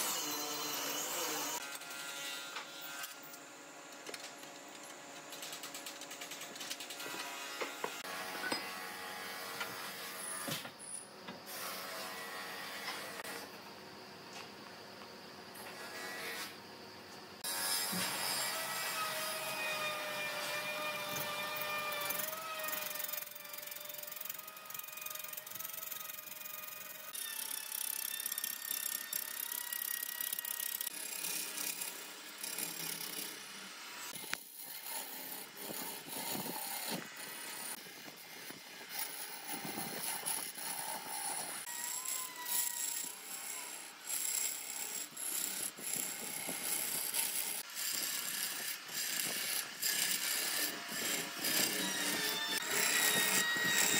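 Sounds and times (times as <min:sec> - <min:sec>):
tool scraping spinning wood: 0:17.9 - 0:53.9
wood lathe whining: 0:17.9 - 0:53.9.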